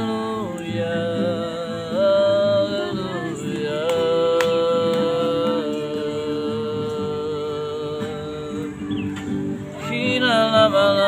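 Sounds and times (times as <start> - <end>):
woman singing: 0.0 - 8.7
acoustic guitar: 0.0 - 11.0.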